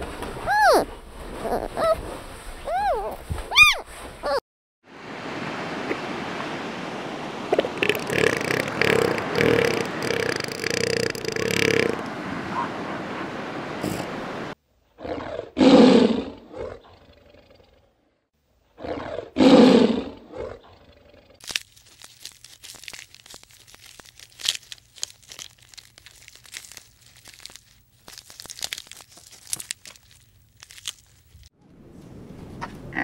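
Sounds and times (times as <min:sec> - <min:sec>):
tiger roaring: 0:15.0 - 0:17.0, 0:18.8 - 0:20.7
giraffe chewing hay: 0:21.4 - 0:31.5.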